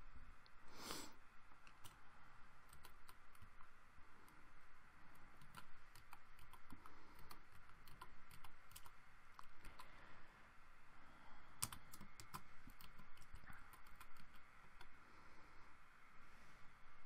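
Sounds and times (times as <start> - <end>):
keyboard keystroke clicks: 11.6 - 14.9.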